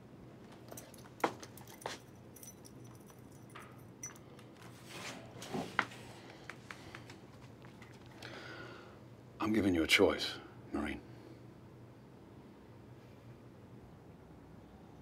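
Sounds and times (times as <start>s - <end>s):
keys jangling: 0.5s - 4.7s.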